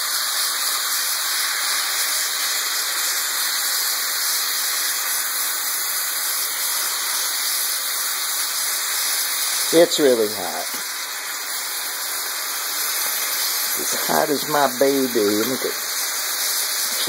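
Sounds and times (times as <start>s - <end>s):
meat sizzling in a pan: 0.0s - 17.0s.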